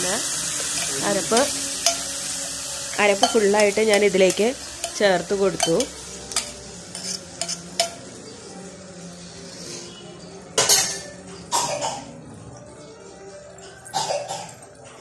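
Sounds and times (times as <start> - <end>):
metal cookware clanks: 0.5 - 8.4, 10.4 - 12.2
metal cookware clinks: 0.6 - 2.2, 2.9 - 8.1, 10.6 - 11.5.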